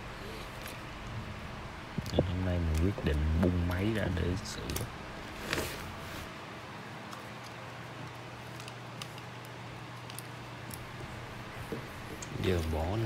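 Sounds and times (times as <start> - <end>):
steady low hum: 0.0 - 13.0
small hard parts clicking: 7.1 - 11.1.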